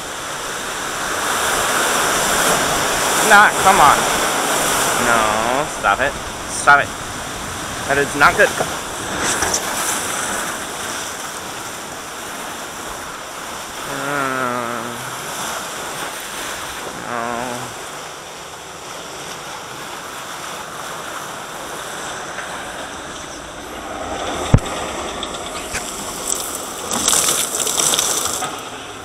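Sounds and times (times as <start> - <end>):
whitewater rushing and splashing: 0.0 - 29.0
person crying out: 13.8 - 15.2, 16.9 - 17.8.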